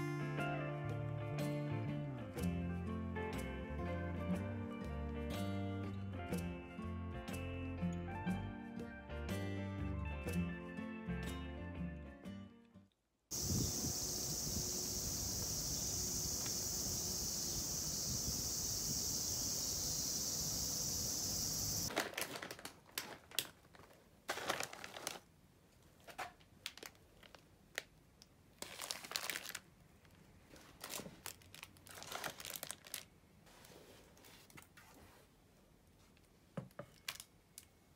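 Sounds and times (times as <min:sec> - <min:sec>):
cicadas buzzing: 0:13.3 - 0:21.9
plastic packaging crinkling: 0:21.9 - 0:25.3, 0:26.0 - 0:33.2.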